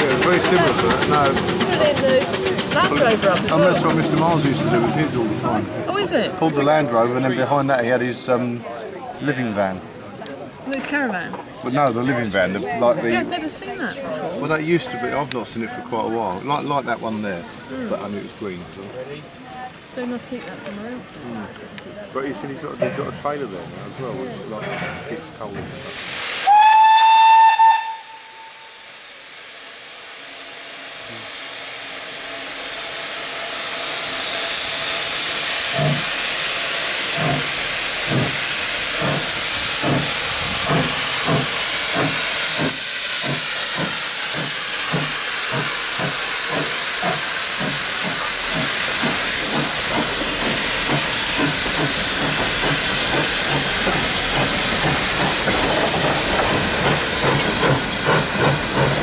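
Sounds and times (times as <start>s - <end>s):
steam locomotive exhaust beats: 0.0s - 5.5s, 25.6s - 59.0s
steam hissing: 0.0s - 5.6s, 25.6s - 59.0s.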